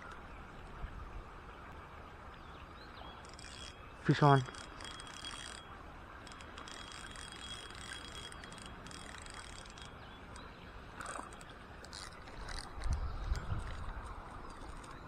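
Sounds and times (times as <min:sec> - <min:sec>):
fishing reel whirring: 0:03.2 - 0:10.4, 0:11.0 - 0:15.0.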